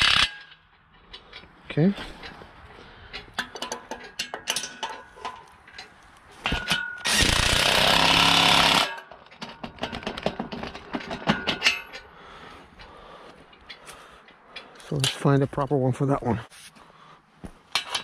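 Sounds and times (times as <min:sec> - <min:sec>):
metal parts clinking: 0:03.1 - 0:07.9, 0:08.6 - 0:12.1.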